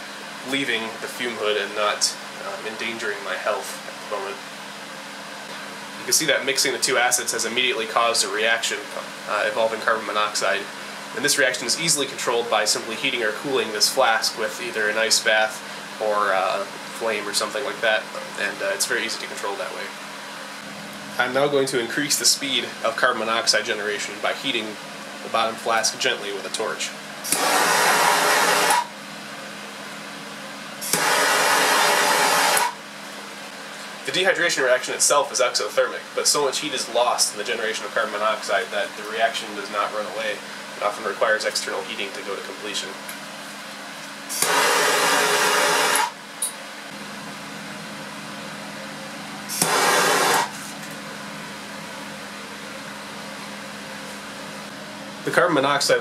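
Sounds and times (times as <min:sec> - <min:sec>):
fume hood fan hum: 0:00.0 - 0:56.0
torch flame hissing: 0:27.2 - 0:28.9, 0:30.8 - 0:32.8, 0:44.3 - 0:46.2, 0:49.5 - 0:50.7.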